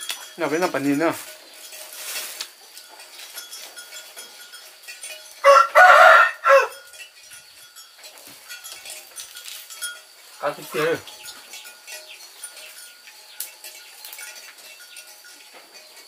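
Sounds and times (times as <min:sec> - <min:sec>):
rooster crowing: 0:05.4 - 0:06.9.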